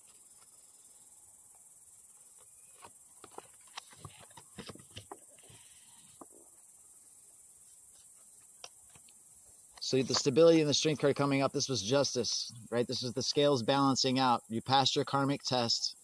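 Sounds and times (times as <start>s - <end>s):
crickets droning: 0.0s - 16.0s
cards being set down: 2.4s - 6.4s.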